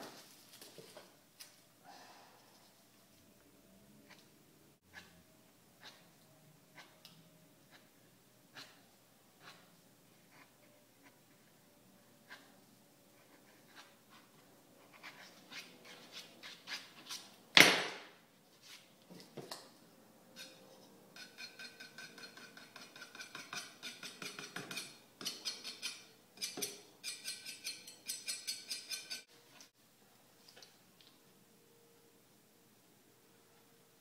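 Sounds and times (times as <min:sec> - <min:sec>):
hand tool scraping a panel: 0:21.2 - 0:29.3.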